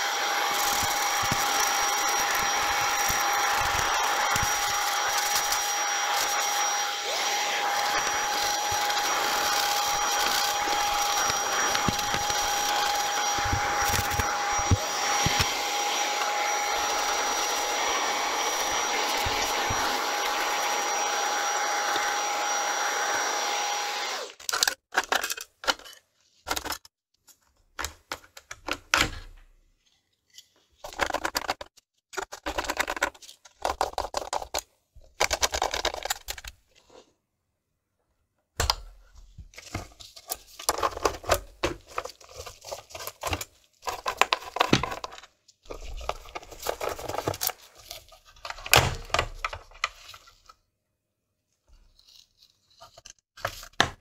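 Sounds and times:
vacuum cleaner running: 0.0 - 24.4
screwdriver turning screws: 0.2 - 20.9
plastic and metal parts handled: 7.6 - 17.4, 24.4 - 37.1, 38.6 - 50.7, 51.6 - 54.0.

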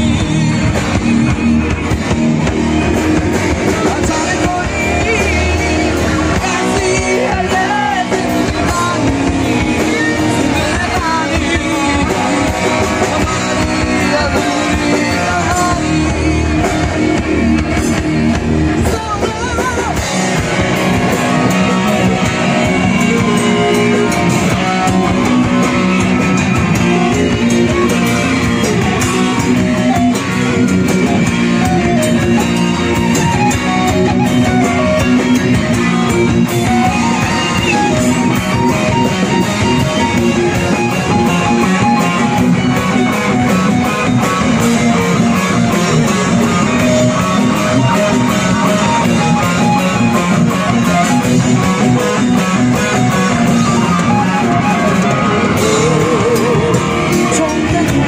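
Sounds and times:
bass guitar: 0.0 - 58.0
drum kit: 0.0 - 58.0
electric guitar: 0.0 - 58.0
keyboard: 0.0 - 58.0
person singing: 3.5 - 20.4, 53.4 - 58.0.

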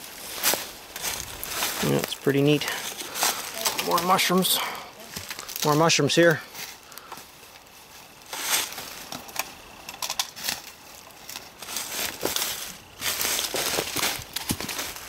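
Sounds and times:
footsteps through dry leaves: 0.0 - 9.7, 10.3 - 15.0
twigs snapping: 2.8 - 4.2, 5.1 - 5.8, 6.6 - 15.0.

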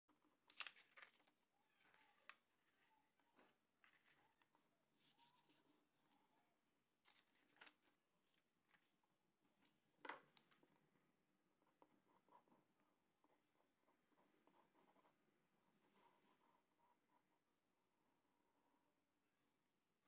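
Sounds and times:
card paper rustling: 0.4 - 6.2, 7.1 - 8.9.

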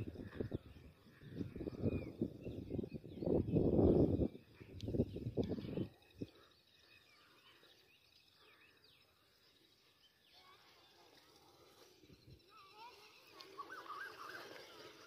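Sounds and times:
low rumble of wind: 0.0 - 6.5
bird chirps: 12.5 - 15.0.

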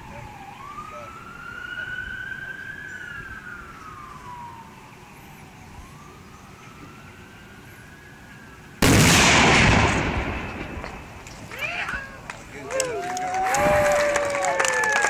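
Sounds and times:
black powder blast: 8.8 - 11.2.

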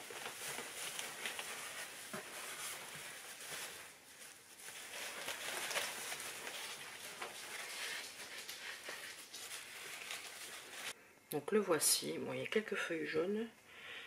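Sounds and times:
packing material rustling: 0.0 - 11.0.

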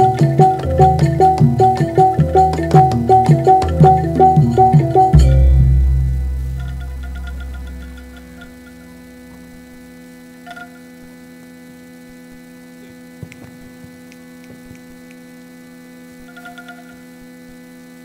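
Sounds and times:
gamelan low ringing: 0.0 - 9.5
electrical mains hum: 0.0 - 18.0.

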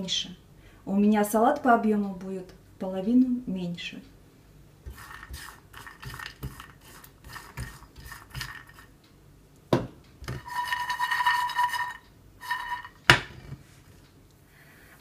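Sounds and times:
pan grating on hob: 4.9 - 8.9, 10.3 - 13.5
spatula scraping nuts in pan: 4.9 - 8.9, 10.3 - 13.5.

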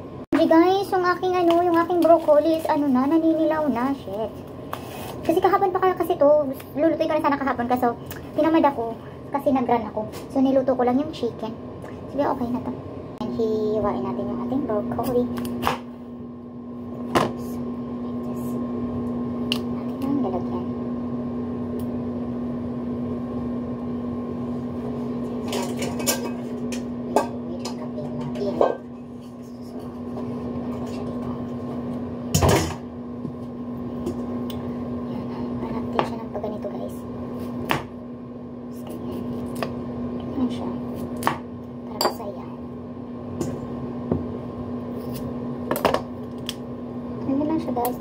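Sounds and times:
steady mechanical hum: 0.0 - 48.0.

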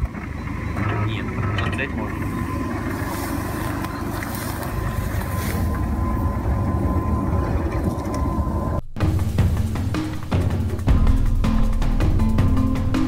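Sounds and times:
thin steady whine: 0.0 - 10.7
car rumbling: 0.0 - 13.0
music: 8.8 - 13.0.

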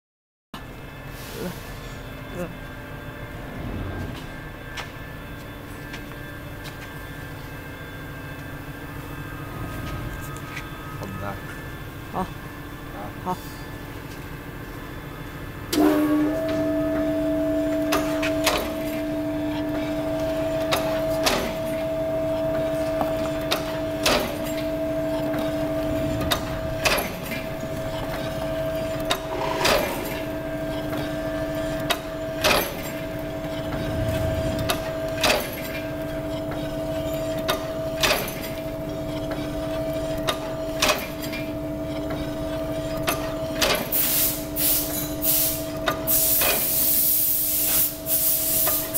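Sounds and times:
electric motor humming: 33.5 - 35.2
hiss: 43.9 - 48.9.

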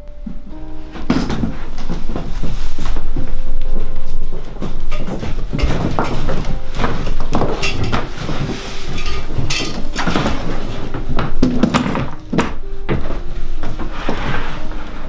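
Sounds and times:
rustling: 0.1 - 15.0
footsteps on wooden floorboards: 0.2 - 15.0
knocks and clunks: 4.5 - 14.5.

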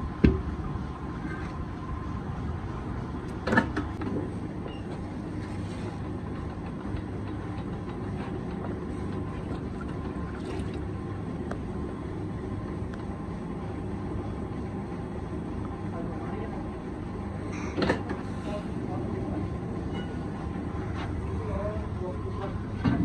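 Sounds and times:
potter's wheel motor rumble: 0.0 - 17.4.

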